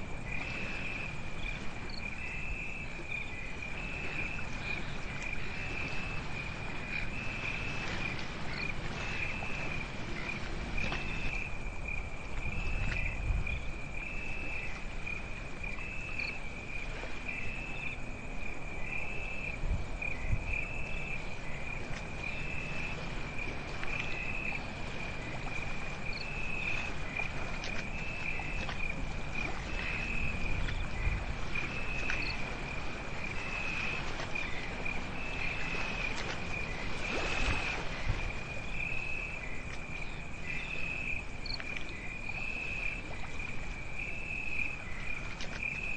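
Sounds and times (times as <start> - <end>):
crickets trilling: 0.0 - 45.9.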